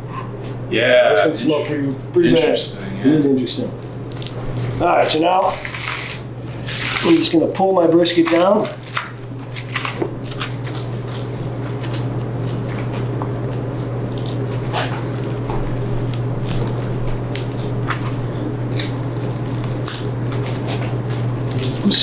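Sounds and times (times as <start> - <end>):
steady low hum: 0.0 - 22.0
wet squelching and tearing meat: 3.8 - 4.6, 16.1 - 22.0.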